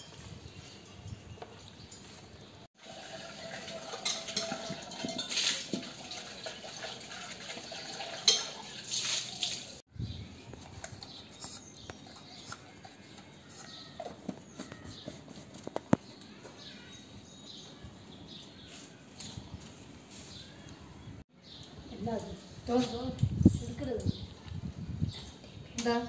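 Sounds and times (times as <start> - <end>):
oil pouring into pot: 2.8 - 9.6.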